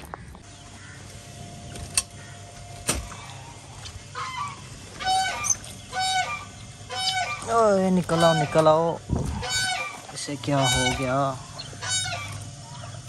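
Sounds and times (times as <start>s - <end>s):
geese honking: 0.0s - 13.0s.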